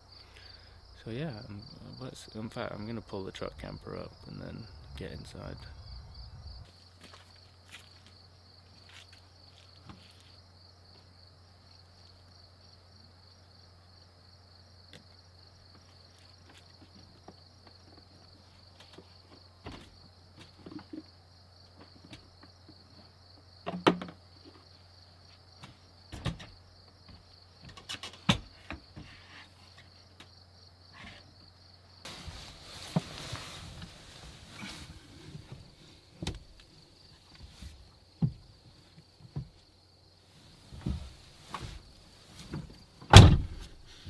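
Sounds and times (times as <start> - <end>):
crickets trilling: 0.0 - 44.0
knocks and thumps in truck bed: 42.5 - 43.8.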